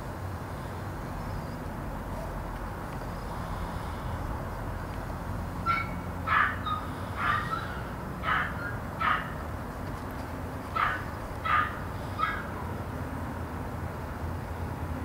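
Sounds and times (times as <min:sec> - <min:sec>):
dog barking: 0:05.6 - 0:09.5, 0:10.8 - 0:12.6.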